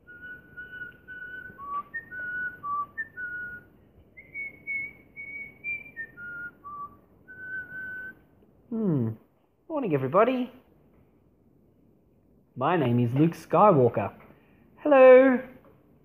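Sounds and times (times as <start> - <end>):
person whistling a tune: 0.0 - 8.2.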